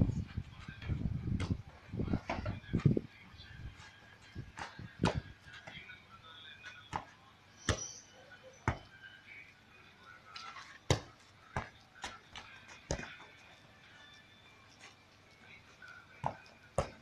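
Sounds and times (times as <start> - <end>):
football touches thudding: 0.5 - 3.0, 4.4 - 5.9, 10.8 - 13.2, 16.2 - 17.0.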